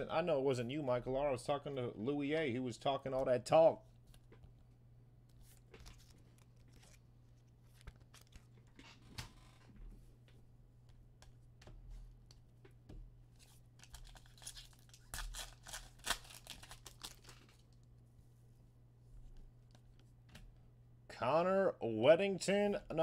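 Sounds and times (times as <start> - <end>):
card pack rustling: 13.4 - 17.7
foil wrapper tearing and crinkling: 13.8 - 17.6.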